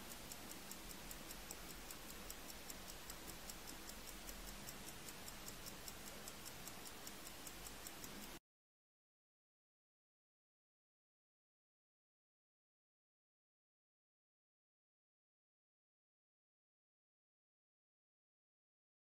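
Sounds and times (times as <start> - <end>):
watch ticking fast: 0.0 - 8.4.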